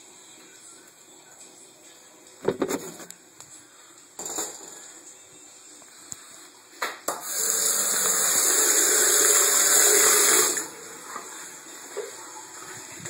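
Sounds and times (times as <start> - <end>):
water running from tap: 7.2 - 13.0.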